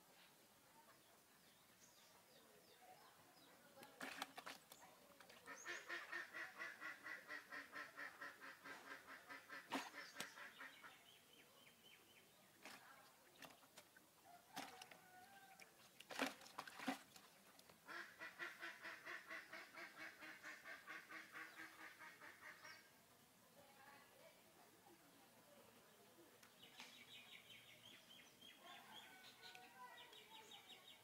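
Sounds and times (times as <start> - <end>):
quack-like animal calls: 5.4 - 11.0.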